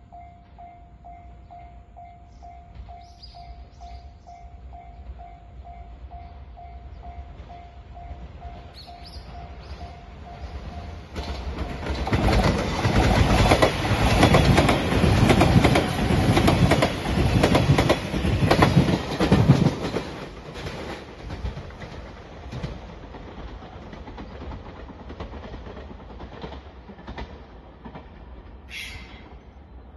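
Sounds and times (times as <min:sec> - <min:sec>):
train wheels clicking over rail joints: 0:08.7 - 0:29.1.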